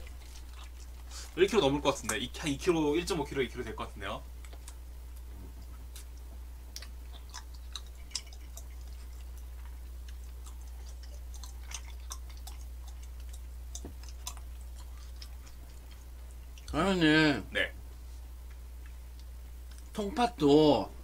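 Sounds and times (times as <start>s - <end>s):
mouth chewing wet clicks: 0.0s - 2.6s, 4.4s - 16.8s, 18.4s - 19.9s
steady low hum: 0.0s - 21.0s.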